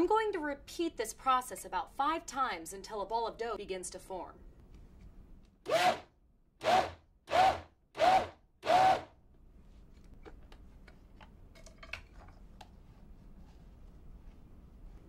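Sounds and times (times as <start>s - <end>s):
blender motor pulsing: 5.7s - 9.1s.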